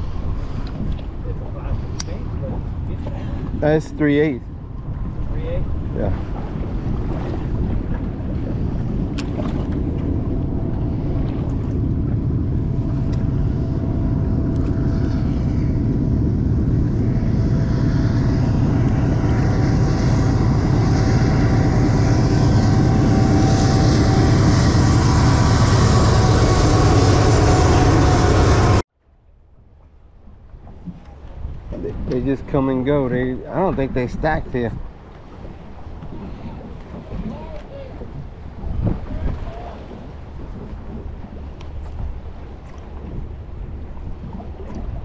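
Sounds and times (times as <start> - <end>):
wind on microphone: 0.0 - 28.8, 29.5 - 45.0
train rumbling over trestle: 18.4 - 28.8.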